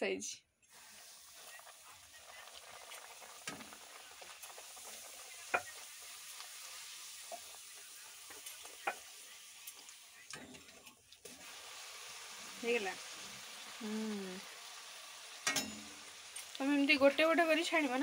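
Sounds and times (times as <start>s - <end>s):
bread sizzling in hot oil: 0.7s - 18.0s
steel spoon clicking on pan: 15.4s - 16.5s.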